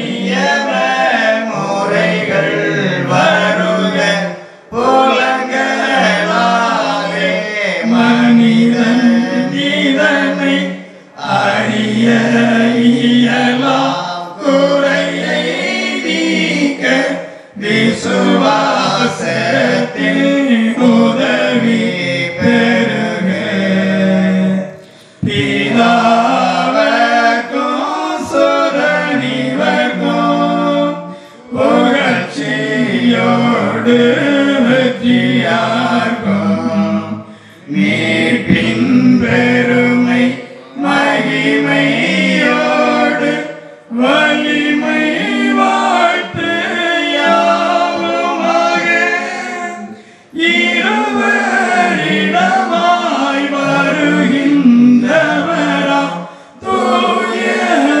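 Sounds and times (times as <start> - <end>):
group singing a hymn: 0.0 - 58.0.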